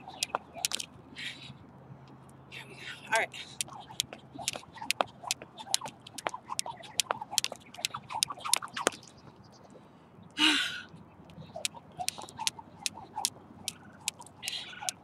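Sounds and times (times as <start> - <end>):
jump rope slapping asphalt: 0.1 - 0.9, 3.6 - 9.0, 11.6 - 15.0.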